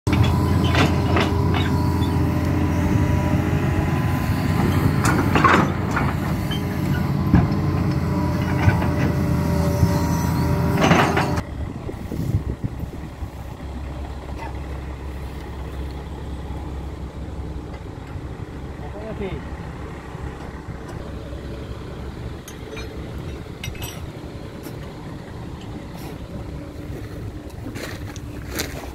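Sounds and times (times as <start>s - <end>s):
excavator diesel engine: 0.0s - 28.9s
hydraulic whine: 0.1s - 13.5s
metal clunks: 4.6s - 9.4s, 10.2s - 11.4s, 22.4s - 25.0s.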